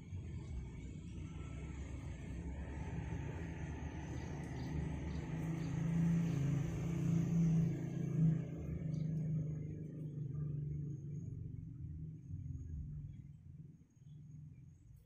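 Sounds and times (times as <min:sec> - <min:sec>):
motor vehicle passing: 0:01.2 - 0:12.7.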